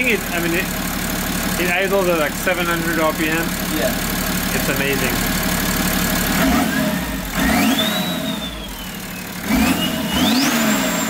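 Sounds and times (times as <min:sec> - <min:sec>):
diesel engine revving: 0:00.0 - 0:11.0
turbo whistle: 0:06.7 - 0:11.0.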